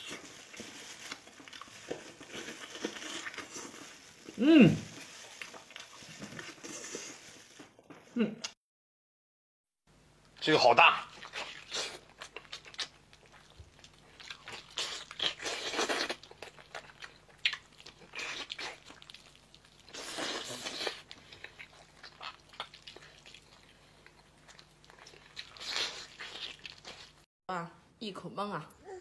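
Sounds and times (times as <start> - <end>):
man chewing meat off bone: 11.1 - 27.2.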